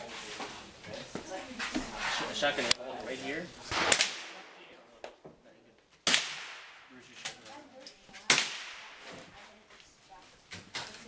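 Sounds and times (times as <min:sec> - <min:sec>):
rifle shots: 0:03.7 - 0:04.6, 0:06.0 - 0:06.9, 0:08.3 - 0:09.0
faint distant gunshots: 0:03.7 - 0:04.7, 0:06.0 - 0:07.1, 0:08.3 - 0:09.1.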